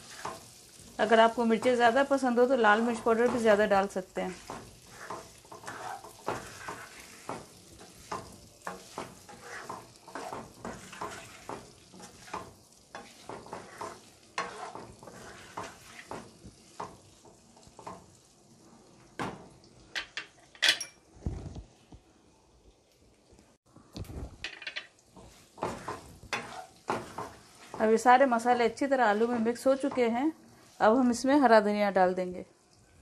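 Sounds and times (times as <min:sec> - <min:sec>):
spatula scraping a pan: 0:00.0 - 0:18.3, 0:24.5 - 0:31.2
oil sizzling: 0:00.0 - 0:33.0.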